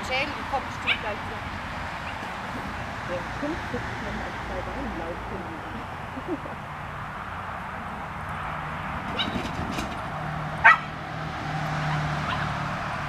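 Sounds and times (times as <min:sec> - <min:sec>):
small dog barking: 0:10.6 - 0:10.9, 0:11.8 - 0:12.6.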